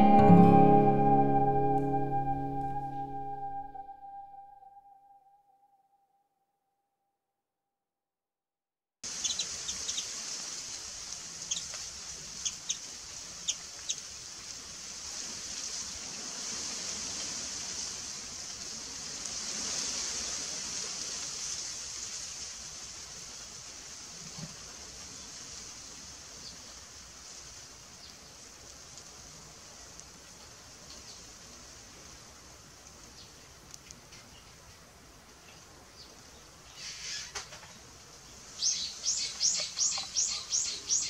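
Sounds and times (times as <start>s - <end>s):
steady high hiss: 38.1s - 41.0s
bird chirping: 38.6s - 41.0s.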